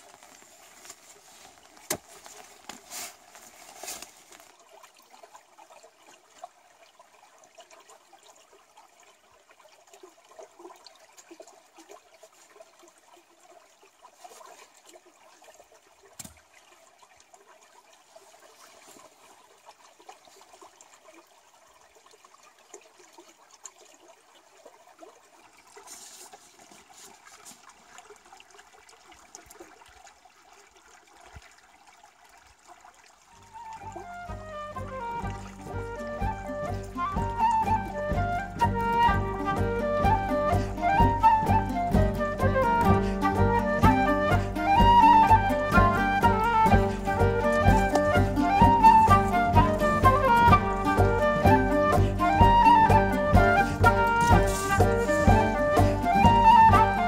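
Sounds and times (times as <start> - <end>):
stream trickling over rocks: 0.0 - 57.0
wood knocking and rustling: 0.1 - 4.5.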